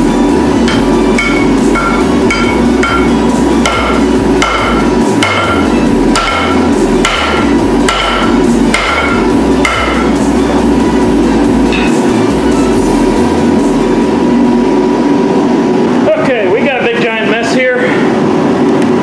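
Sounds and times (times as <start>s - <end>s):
hammer blows on steel anvil: 0.7s - 10.2s.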